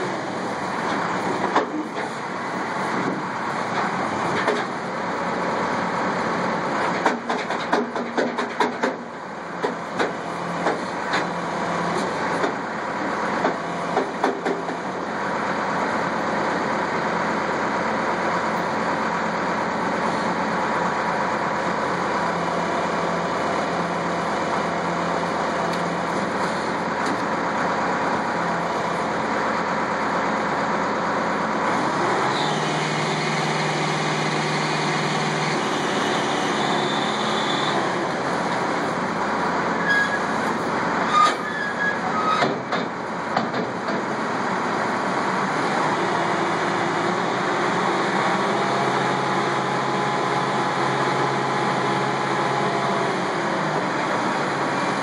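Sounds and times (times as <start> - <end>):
diesel engine running: 0.0 - 55.0
sharp knocks and clatters: 6.9 - 11.3, 13.4 - 14.8, 42.4 - 44.1.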